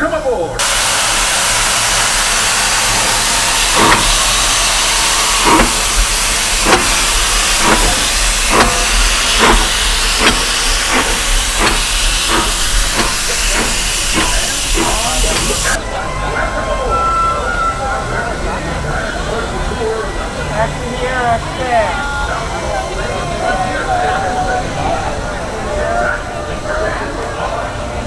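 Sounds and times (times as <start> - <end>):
steam hissing: 0.6 - 15.8
steam locomotive exhaust chuffs: 0.6 - 15.8.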